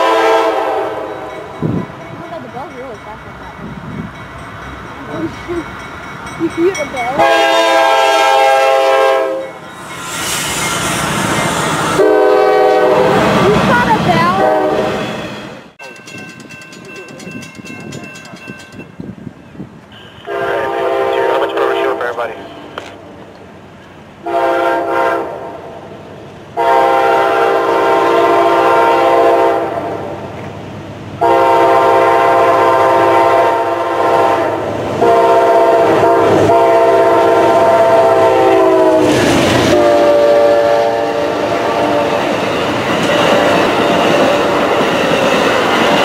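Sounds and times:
train horn blasts: 0:00.0 - 0:01.5, 0:07.2 - 0:09.6, 0:11.4 - 0:13.6, 0:14.2 - 0:15.1, 0:19.9 - 0:22.8, 0:24.2 - 0:25.6, 0:26.6 - 0:30.0, 0:31.2 - 0:42.3
locomotive passing in loud rush: 0:00.0 - 0:18.9, 0:27.2 - 0:46.0
train cars rolling past: 0:00.0 - 0:46.0.

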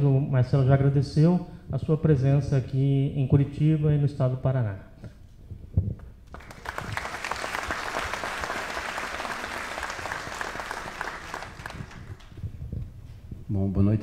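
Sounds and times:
audience applauding: 0:06.3 - 0:12.4.

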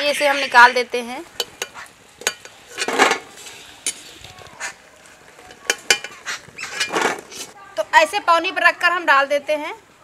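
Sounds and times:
metal skimmer clinking on iron pan: 0:01.4 - 0:04.1, 0:05.5 - 0:07.0.

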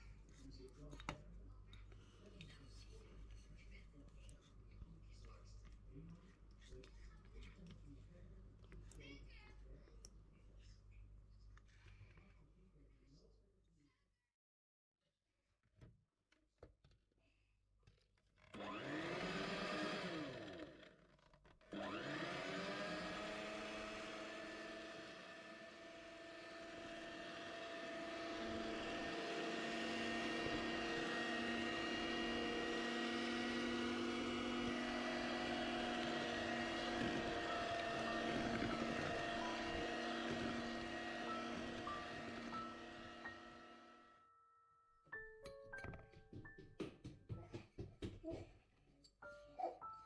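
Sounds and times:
electric hand mixer whining: 0:18.5 - 0:21.0, 0:21.7 - 0:44.1.

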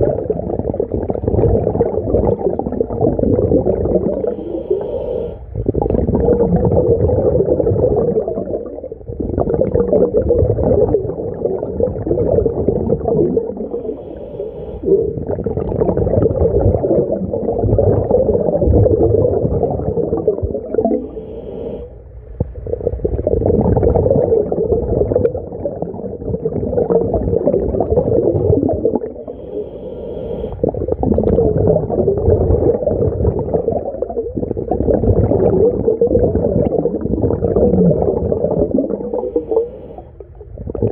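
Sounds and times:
muffled bubbling exhale: 0:00.0 - 0:40.9
regulator inhale hiss: 0:04.2 - 0:05.6, 0:13.6 - 0:15.0, 0:21.0 - 0:22.5, 0:29.2 - 0:30.8, 0:39.1 - 0:40.4.

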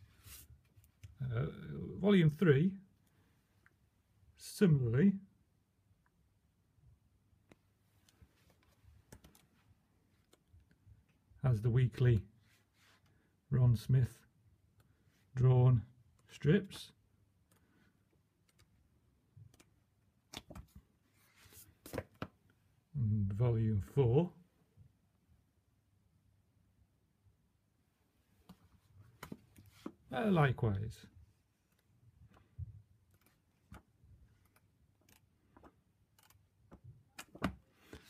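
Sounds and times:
comic pages turning: 0:20.3 - 0:22.3.

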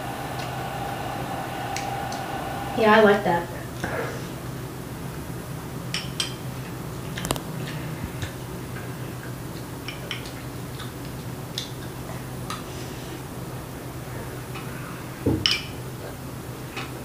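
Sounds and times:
low steady hum: 0:00.0 - 0:03.8.

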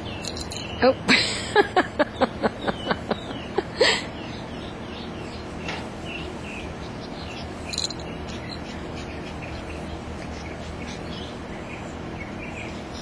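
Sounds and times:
puppies yipping: 0:06.8 - 0:11.8.

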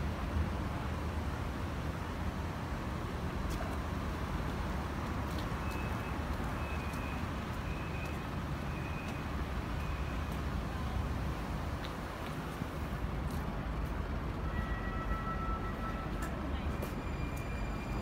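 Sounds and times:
distant traffic: 0:00.0 - 0:18.0
faint footstep clicks: 0:05.0 - 0:08.4, 0:11.7 - 0:14.0.

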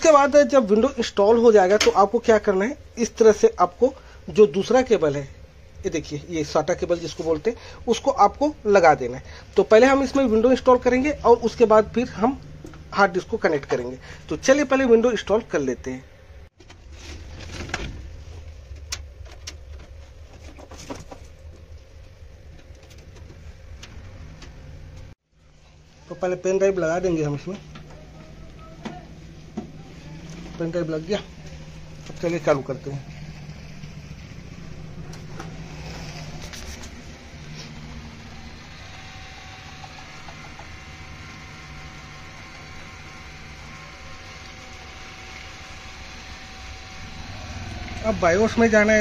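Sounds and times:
low steady hum: 0:00.0 - 0:49.0.

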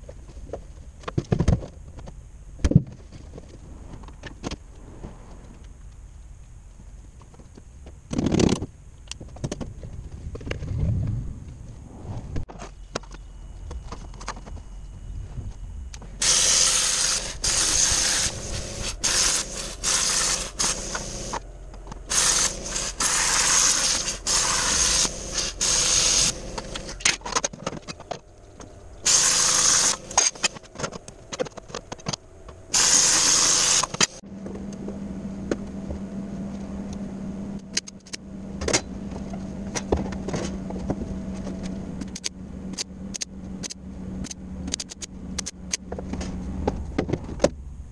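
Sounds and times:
low hum: 0:00.0 - 0:33.2, 0:33.8 - 0:47.9
power tool cutting steel: 0:16.2 - 0:21.4, 0:22.1 - 0:27.0, 0:29.0 - 0:30.6, 0:32.7 - 0:34.2.

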